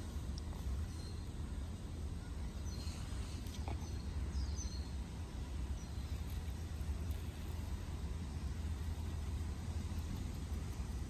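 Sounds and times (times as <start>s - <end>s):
faint bird chirps: 0.0s - 7.7s.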